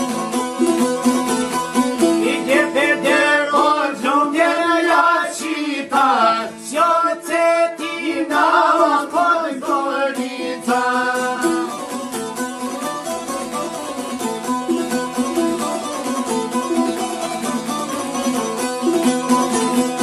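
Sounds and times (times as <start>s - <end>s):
plucked string instrument with drone: 0.0s - 6.5s, 7.6s - 20.0s
man singing folk song: 2.1s - 12.2s.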